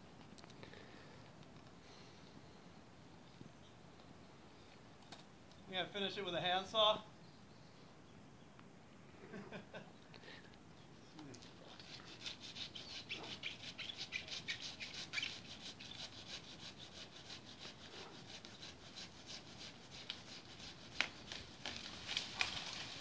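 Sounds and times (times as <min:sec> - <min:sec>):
handsaw cutting wood: 0:11.7 - 0:21.8.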